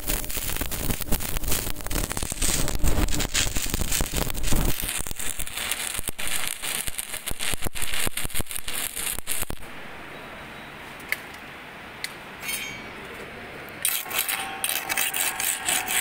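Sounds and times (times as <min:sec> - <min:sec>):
welding arc crackling and popping: 0:00.0 - 0:09.8, 0:13.8 - 0:16.0.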